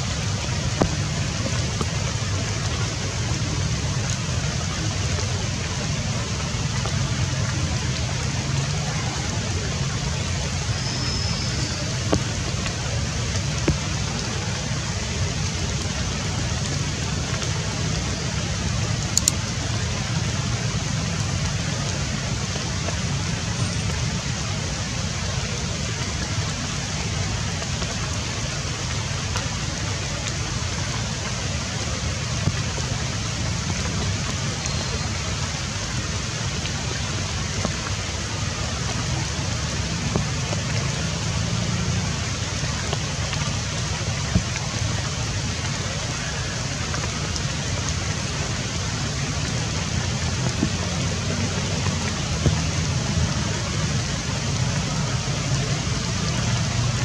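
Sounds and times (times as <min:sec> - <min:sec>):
faint ticks: 0:19.2 - 0:19.4.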